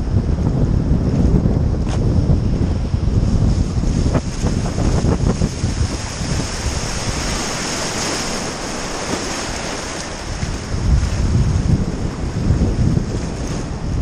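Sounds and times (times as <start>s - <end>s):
surf rushing around kayak: 0.0s - 14.0s
wind buffeting microphone: 0.0s - 14.0s.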